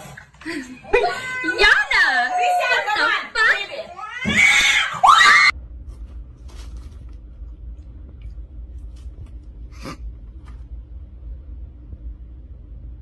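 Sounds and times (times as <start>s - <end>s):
woman screaming: 0.9s - 5.5s
low steady hum: 5.4s - 13.0s.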